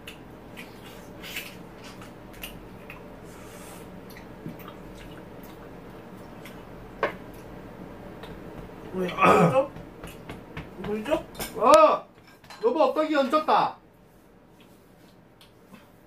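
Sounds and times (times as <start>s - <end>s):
faint wet chewing: 0.0s - 7.6s, 14.5s - 16.0s.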